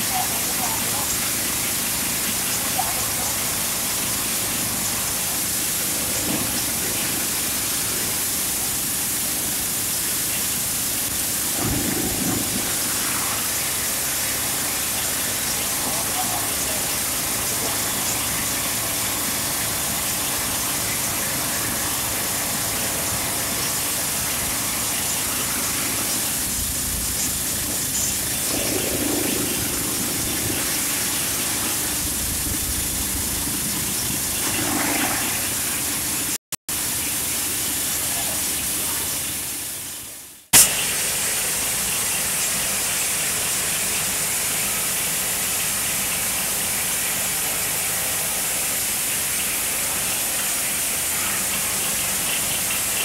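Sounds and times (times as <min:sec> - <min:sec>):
faint voices: 0:00.0 - 0:08.7, 0:11.6 - 0:24.1
loud hissing rush: 0:00.0 - 0:53.0.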